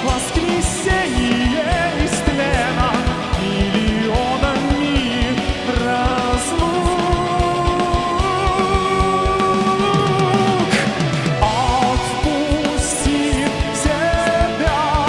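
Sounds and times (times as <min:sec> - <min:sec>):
heavy metal band playing: 0:00.0 - 0:15.0
person singing: 0:00.0 - 0:15.0.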